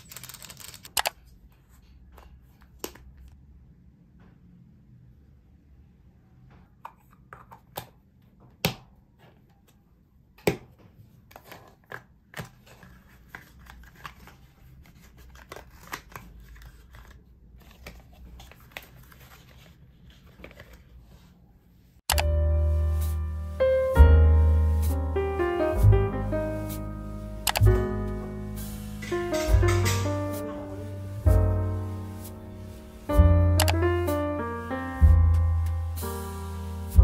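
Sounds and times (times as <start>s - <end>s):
paper rustling: 11.3s - 21.4s.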